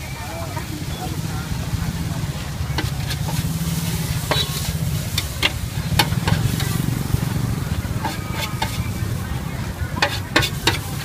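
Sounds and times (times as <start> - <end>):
noodles sizzling in a wok: 0.0 - 11.0
low rumble: 1.2 - 9.9
utensil scraping metal pan: 2.5 - 9.3, 9.9 - 11.0.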